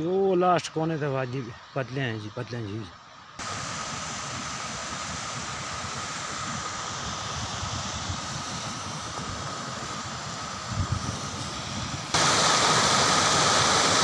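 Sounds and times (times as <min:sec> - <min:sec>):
thin steady whine: 0:00.0 - 0:14.0
wind on microphone: 0:03.4 - 0:14.0.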